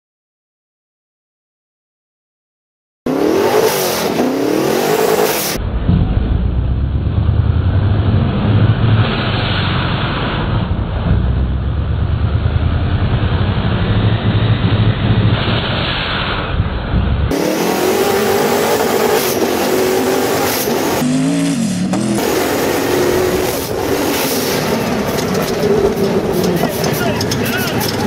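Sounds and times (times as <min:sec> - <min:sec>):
buggy engine revving and droning: 0:03.1 - 0:15.8, 0:16.8 - 0:28.0.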